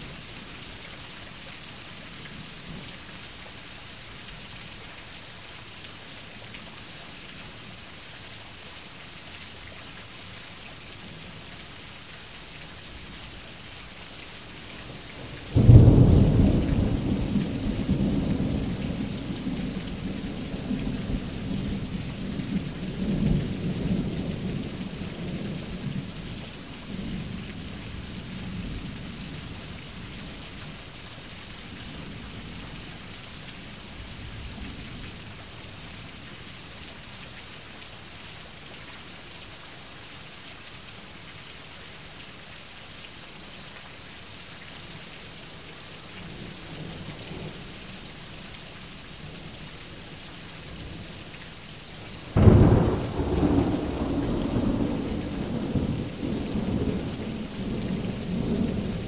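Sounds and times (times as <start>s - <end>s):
rain hissing: 46.4s - 59.0s
loud thunderclap: 52.4s - 55.9s
distant thunder rumbling: 52.4s - 58.6s.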